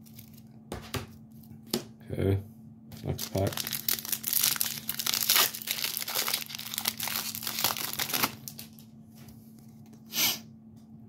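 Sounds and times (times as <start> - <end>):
wrapper tearing and crinkling: 0.0 - 0.4, 3.0 - 8.8.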